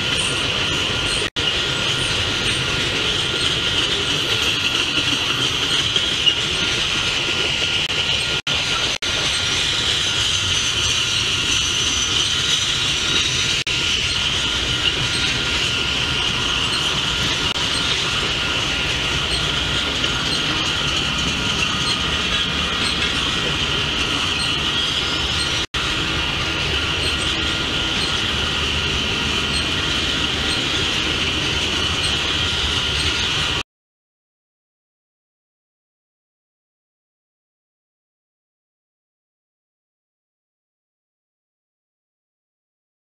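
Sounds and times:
train wheels rumbling on rail: 0:00.0 - 0:33.6
high-pitched wheel squeal: 0:08.1 - 0:33.6.

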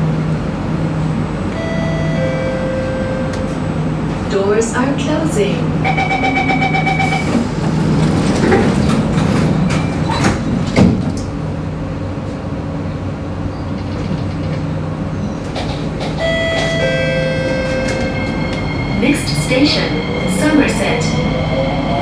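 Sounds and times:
train running hum: 0:00.0 - 0:22.0
door-closing chime beeps: 0:06.0 - 0:07.4
train doors sliding shut: 0:06.5 - 0:11.5, 0:13.5 - 0:21.0.

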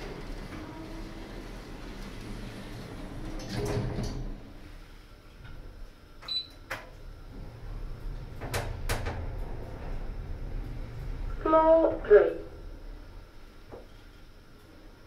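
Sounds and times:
doors closing with dull thud: 0:00.0 - 0:04.5, 0:05.5 - 0:11.3
lift doors sliding shut: 0:00.0 - 0:14.2
steady low hum: 0:00.0 - 0:15.0.

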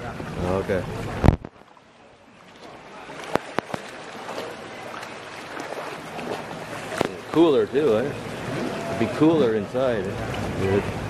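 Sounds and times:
water lapping around kayak: 0:00.0 - 0:11.0.

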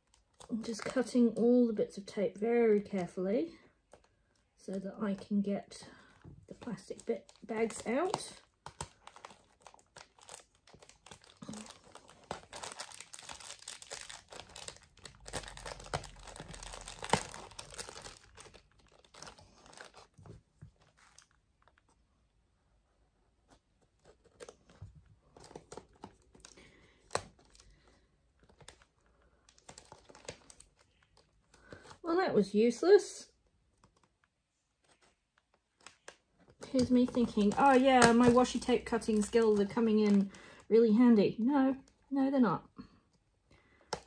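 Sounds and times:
plastic bags crinkling: 0:06.4 - 0:21.8, 0:24.0 - 0:32.0, 0:35.8 - 0:40.7
tape being peeled: 0:06.5 - 0:22.0, 0:23.4 - 0:32.0.

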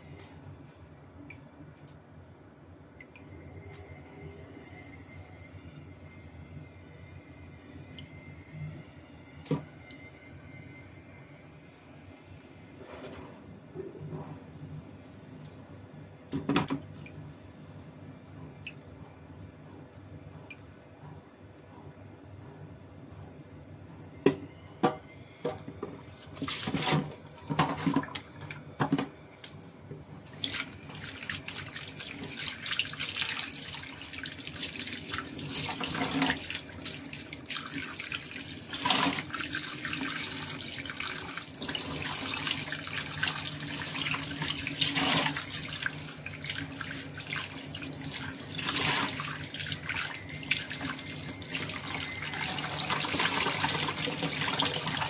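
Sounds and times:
tap water running into sink: 0:30.3 - 0:55.0.

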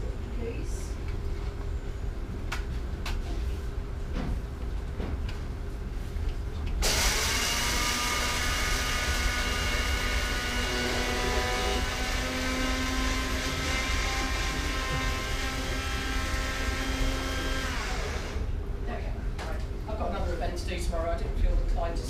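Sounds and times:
electric spice grinder motor whine: 0:06.8 - 0:18.5.

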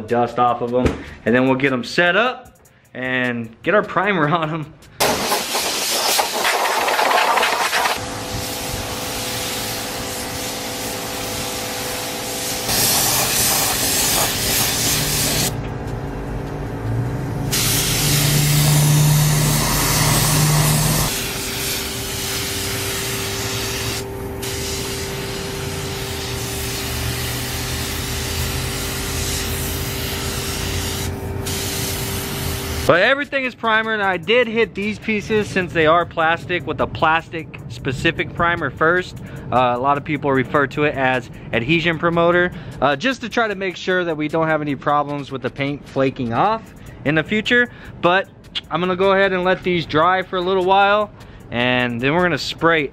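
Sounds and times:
hose spraying water: 0:05.0 - 0:15.5, 0:17.5 - 0:32.9
spray gun hissing: 0:05.0 - 0:15.6, 0:17.5 - 0:32.9
steady hum: 0:06.3 - 0:33.4.

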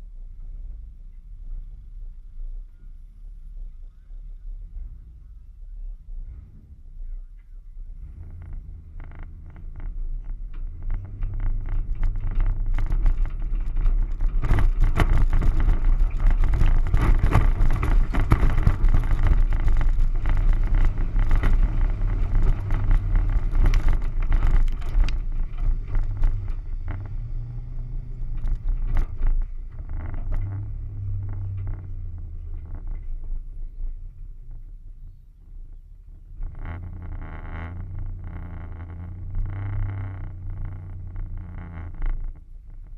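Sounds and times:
engine pulling hard through mud: 0:08.0 - 0:34.5, 0:36.2 - 0:42.9.

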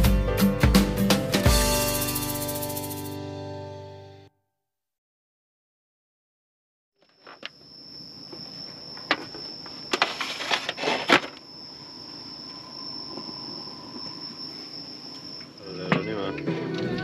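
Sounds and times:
night insects calling: 0:07.0 - 0:17.0.

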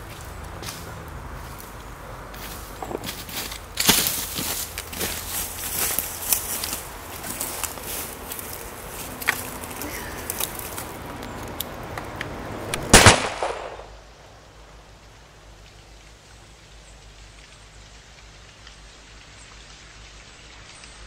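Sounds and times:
rain patter: 0:00.0 - 0:21.0
loud gunshot: 0:12.8 - 0:14.0
small clicks and rustles: 0:15.0 - 0:21.0.

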